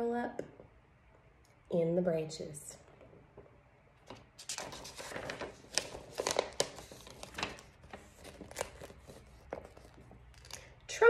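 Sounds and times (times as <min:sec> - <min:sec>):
paper pages rustling: 0:04.0 - 0:10.6.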